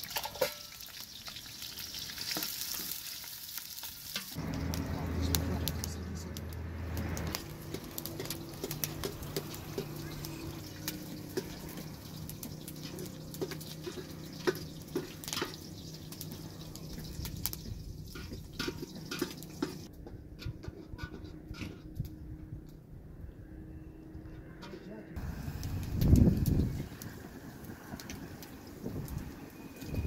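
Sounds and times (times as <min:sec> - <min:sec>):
pot bubbling and splashing: 0:00.0 - 0:19.9, 0:25.2 - 0:30.0
burning wood crackling and popping: 0:00.0 - 0:20.0, 0:25.2 - 0:30.0.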